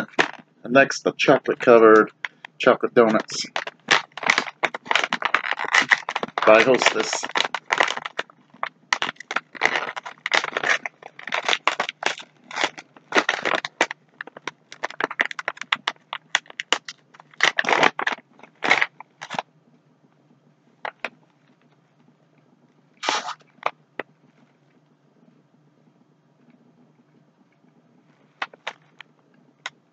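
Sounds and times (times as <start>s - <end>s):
plastic snack bag crinkling: 0.0s - 0.4s, 1.2s - 19.4s, 23.0s - 23.8s, 28.4s - 29.0s.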